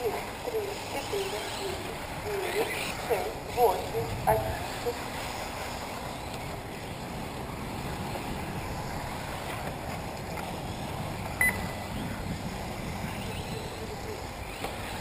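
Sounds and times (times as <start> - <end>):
wind noise on microphone: 3.0 - 15.0
short high beep: 11.4 - 11.8
rc cars running: 12.4 - 15.0.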